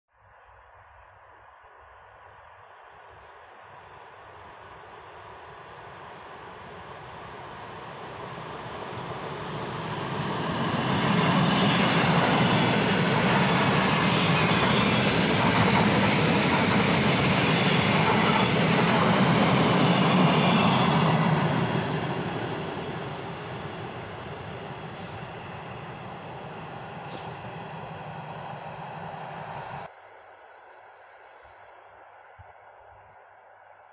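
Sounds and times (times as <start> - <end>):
electric train passing: 3.7 - 30.2.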